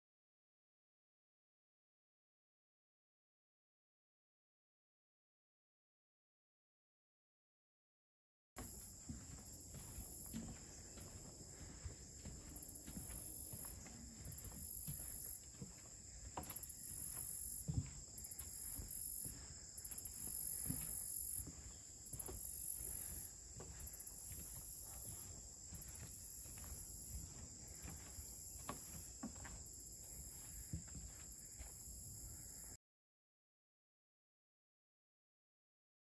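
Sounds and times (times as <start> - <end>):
footsteps on trail: 8.6 - 32.7
insect chorus buzzing: 8.6 - 32.8.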